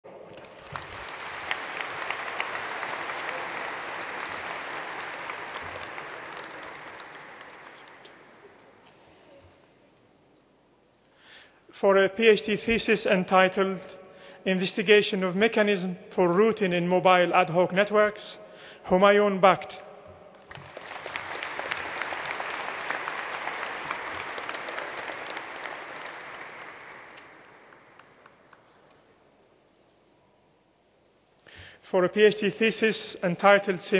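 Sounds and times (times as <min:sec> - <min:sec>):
audience applauding: 0:00.1 - 0:08.7, 0:20.4 - 0:29.0.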